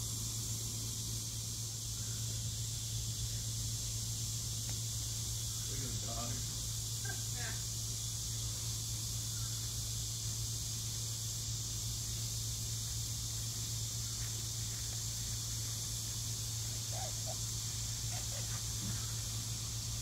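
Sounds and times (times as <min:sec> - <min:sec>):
high steady hiss: 0:00.0 - 0:20.0.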